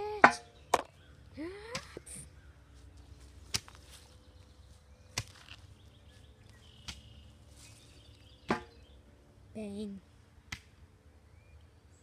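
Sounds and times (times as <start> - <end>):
pole thudding on log: 8.5 - 8.7.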